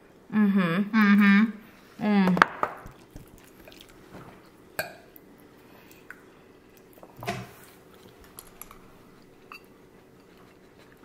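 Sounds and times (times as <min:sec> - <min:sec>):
quiet chewing: 0:02.9 - 0:11.0.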